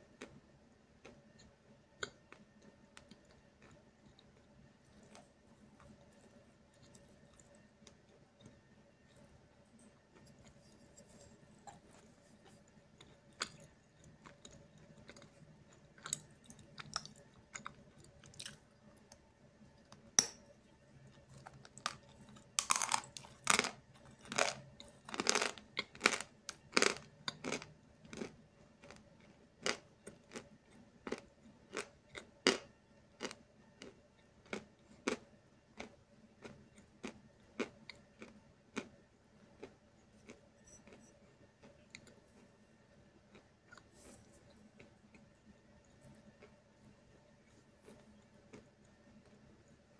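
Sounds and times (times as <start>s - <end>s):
chalk crunching while chewed: 9.9s - 18.6s, 21.1s - 32.6s, 33.2s - 35.2s, 35.8s - 38.9s.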